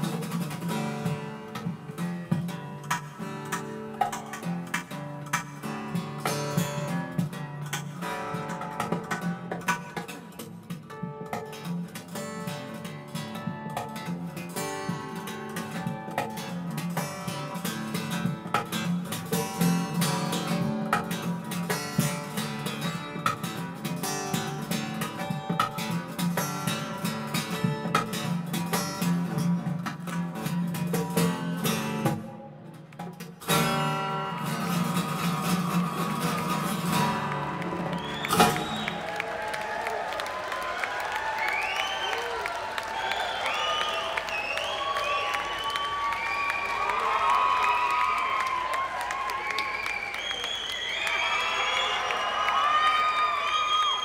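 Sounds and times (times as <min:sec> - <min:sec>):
acoustic guitar strummed fast: 0:00.0 - 0:39.3.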